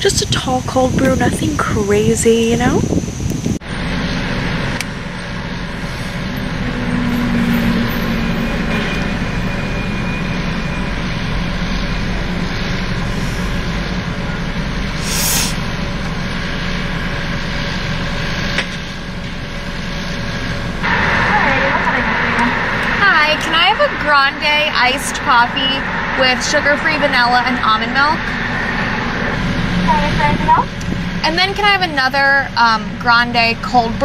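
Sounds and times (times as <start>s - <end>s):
car engine and road noise: 0.0s - 34.0s
short hiss: 15.0s - 15.6s.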